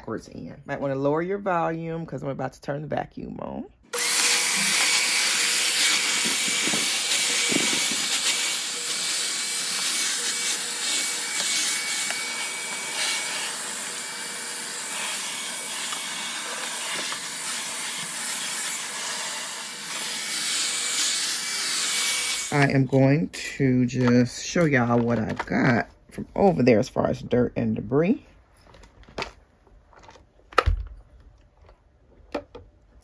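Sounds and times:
vacuum cleaner running: 0:03.9 - 0:22.7.

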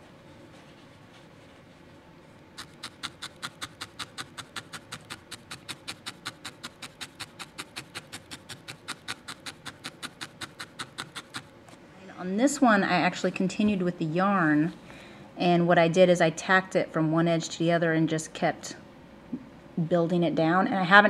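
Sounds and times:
felting needle stabbing wool: 0:02.6 - 0:11.4.

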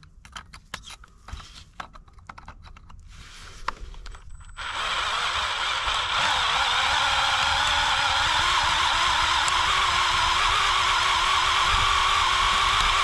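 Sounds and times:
clicks and taps: 0:01.8 - 0:03.0
electric drill drilling metal: 0:04.6 - 0:13.0.

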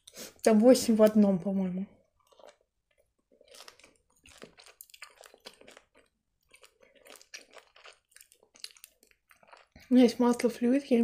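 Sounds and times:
chewing gummy candy: 0:02.0 - 0:10.5.

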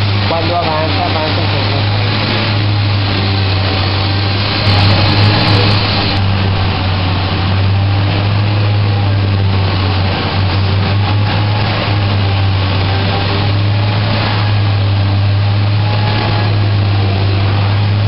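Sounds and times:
fabric cutting machinery hum: 0:00.0 - 0:18.0
machinery clicking: 0:00.8 - 0:07.4.

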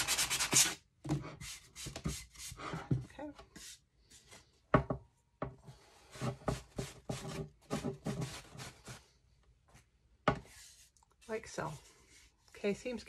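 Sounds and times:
sanding block on wood: 0:00.0 - 0:00.8.

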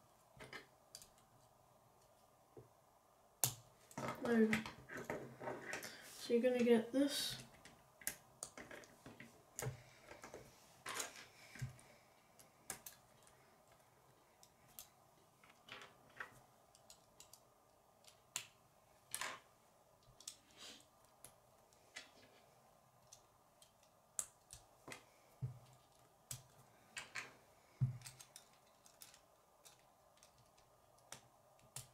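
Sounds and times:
plastic pieces clicking: 0:14.4 - 0:17.4, 0:28.0 - 0:31.9.

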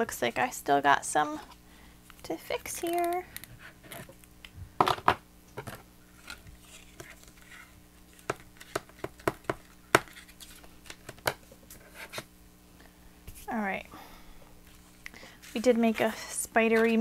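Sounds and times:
faint steady hum: 0:00.0 - 0:17.0
crafting tools tapping cardboard: 0:08.3 - 0:10.1.

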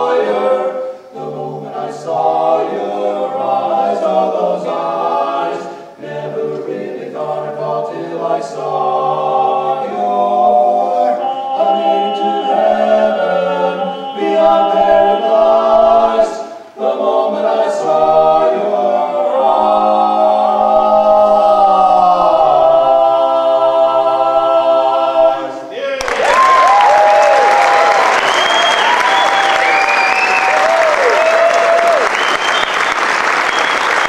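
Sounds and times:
men singing a cappella harmony: 0:00.0 - 0:25.7
audience applause and cheering: 0:25.9 - 0:34.0.

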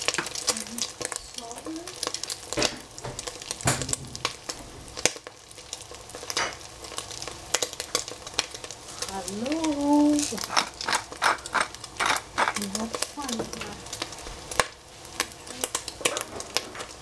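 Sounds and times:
food sizzling in frying pan: 0:00.0 - 0:17.0
spatula scraping pan: 0:10.1 - 0:14.5.

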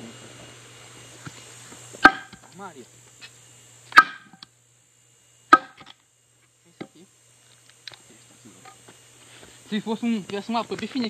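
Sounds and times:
metal tool striking wood: 0:02.0 - 0:02.4, 0:03.9 - 0:04.4, 0:05.5 - 0:05.9.

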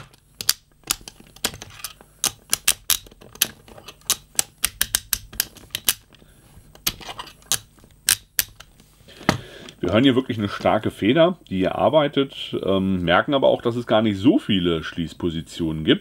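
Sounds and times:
handcuff ratchet clicking: 0:02.2 - 0:06.0, 0:07.5 - 0:08.7.

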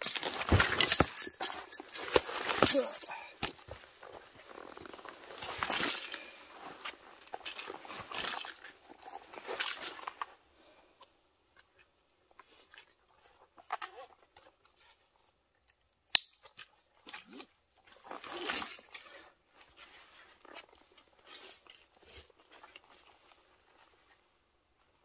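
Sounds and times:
hiking gear rustling and clicking: 0:00.0 - 0:10.3.

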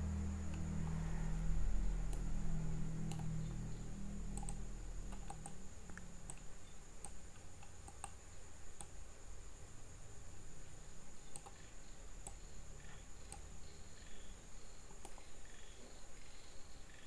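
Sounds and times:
low hum: 0:00.0 - 0:09.0
faint high whine: 0:00.0 - 0:17.0
mouse and keyboard clicks: 0:03.1 - 0:03.3, 0:04.3 - 0:08.2.

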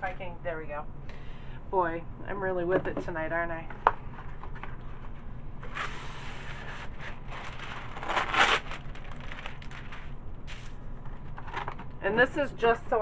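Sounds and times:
wax paper tearing: 0:05.8 - 0:11.8.

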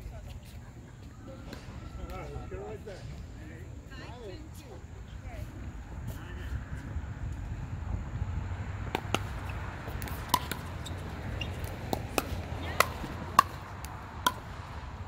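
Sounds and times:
paddles hitting plastic ball: 0:08.9 - 0:14.6.

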